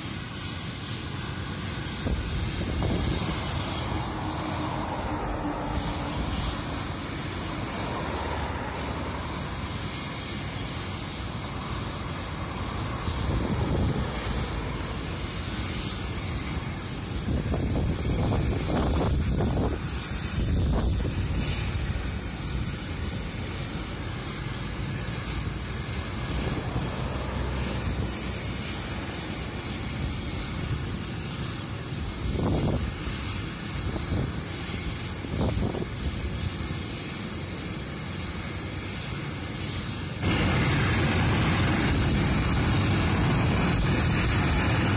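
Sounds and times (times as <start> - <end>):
helicopter engine and rotor running: 0.0 - 44.9
wind buffeting microphone: 1.8 - 36.8, 40.2 - 44.9.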